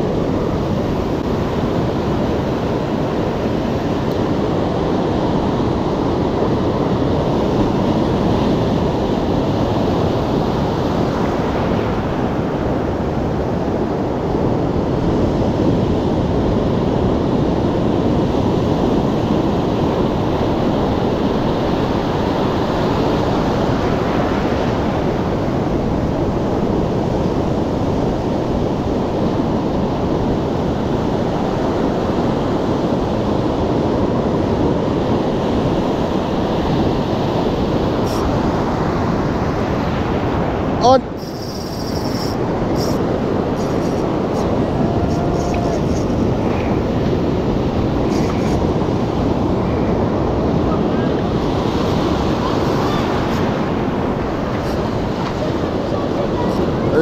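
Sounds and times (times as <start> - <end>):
ocean surf washing ashore: 0.0 - 57.0
wind on microphone: 0.0 - 57.0.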